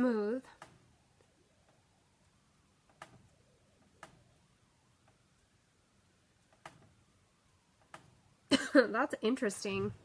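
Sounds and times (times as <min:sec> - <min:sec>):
small sharp clicks: 0:00.5 - 0:05.6, 0:06.4 - 0:08.2.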